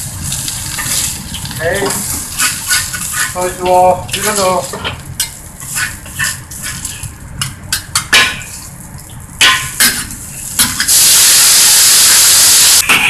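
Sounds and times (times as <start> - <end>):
liquid sizzling in hot wok: 0.0 - 12.8
spatula scraping a wok: 0.7 - 7.1.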